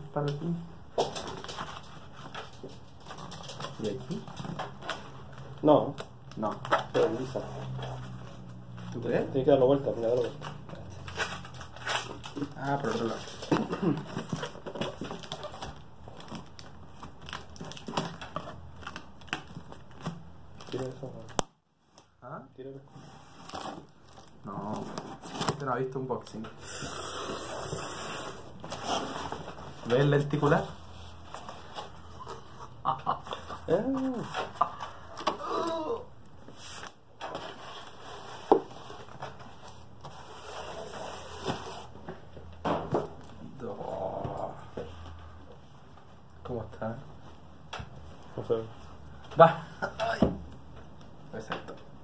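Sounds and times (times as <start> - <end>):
cardboard box rustling and scraping: 28.4 - 32.2.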